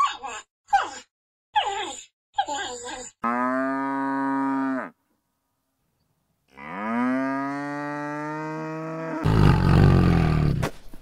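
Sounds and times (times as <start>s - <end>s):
cow mooing: 3.2s - 5.0s, 6.5s - 10.4s.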